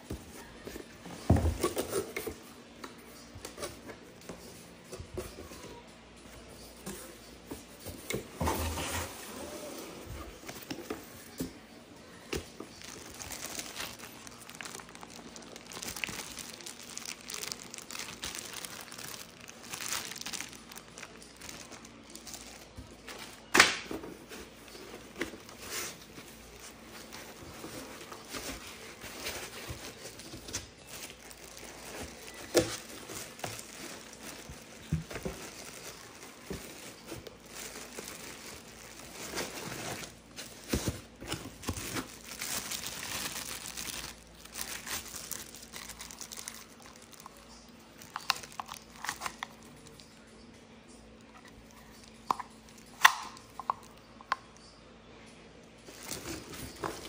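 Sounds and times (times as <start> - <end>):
plastic bags crinkling: 12.2 - 23.5, 24.2 - 50.1, 51.4 - 54.4, 55.8 - 57.0.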